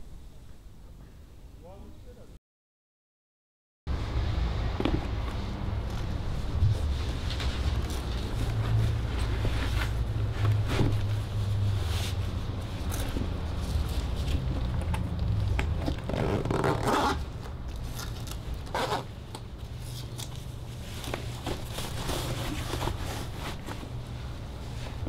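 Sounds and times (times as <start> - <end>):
laces rasping through boots: 12.8 - 19.1.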